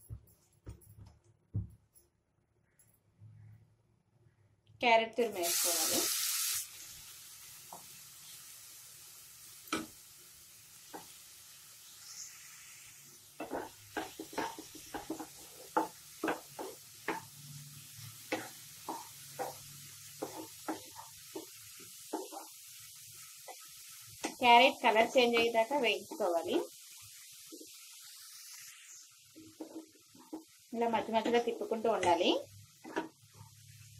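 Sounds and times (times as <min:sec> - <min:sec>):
food sizzling in pan: 0:05.2 - 0:33.9
spatula scraping and knocking pan: 0:13.4 - 0:17.4, 0:18.0 - 0:22.6, 0:29.4 - 0:32.2.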